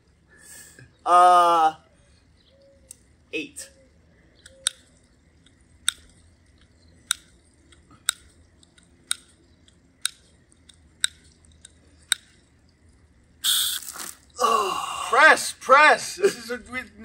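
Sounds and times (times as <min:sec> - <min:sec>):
spray nozzle dial clicking: 0:13.4 - 0:14.1.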